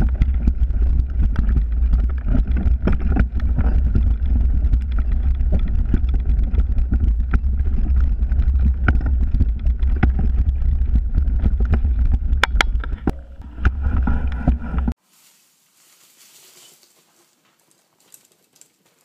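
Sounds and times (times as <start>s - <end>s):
bike rattling over rocks: 0.0s - 15.0s
low wind rumble on microphone: 0.0s - 15.0s.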